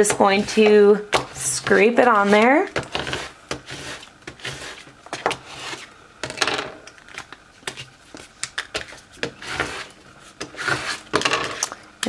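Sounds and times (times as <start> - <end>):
plastic scraper scratching tape: 0.4 - 5.8, 9.3 - 11.0.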